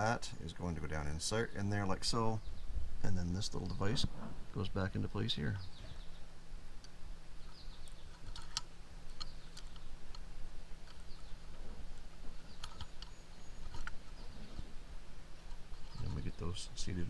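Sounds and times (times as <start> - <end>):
small metal parts clicking: 7.8 - 10.2, 10.8 - 11.3, 12.4 - 14.0.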